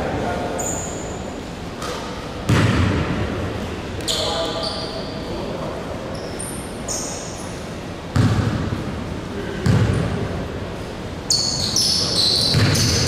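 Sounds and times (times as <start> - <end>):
sneakers squeaking on floor: 0.6 - 1.3, 4.0 - 5.3, 6.1 - 8.4, 11.3 - 13.0.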